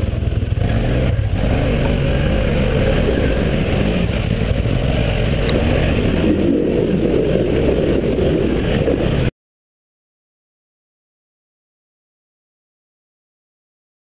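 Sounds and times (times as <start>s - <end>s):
quad bike engine rumbling: 0.0s - 9.3s.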